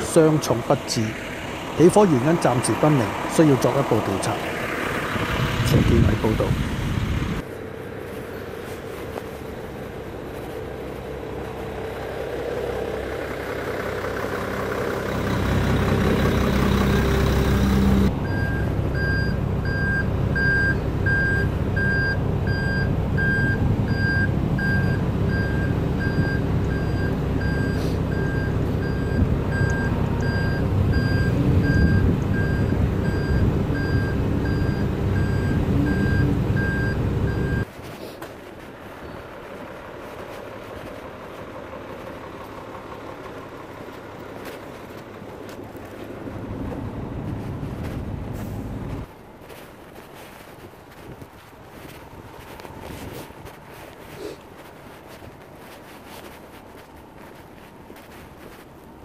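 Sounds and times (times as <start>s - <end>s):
vehicle engine low rumble: 0.0s - 59.0s
reversing alarm beeping: 15.1s - 37.7s.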